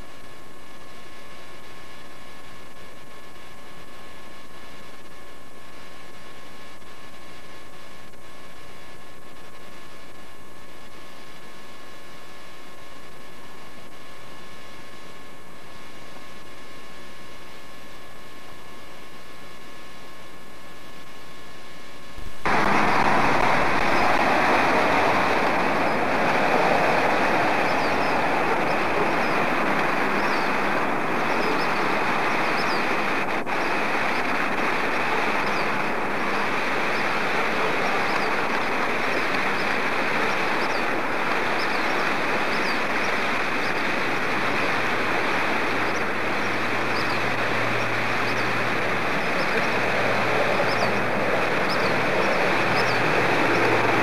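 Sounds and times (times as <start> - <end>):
river rushing over rocks: 22.5 - 54.0.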